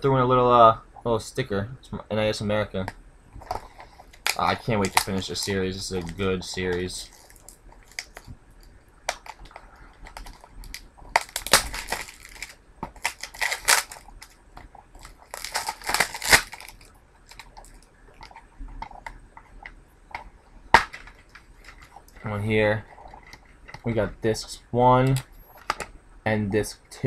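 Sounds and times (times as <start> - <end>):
plastic wrapping crinkling and tearing: 3.4 - 19.1, 20.8 - 23.5.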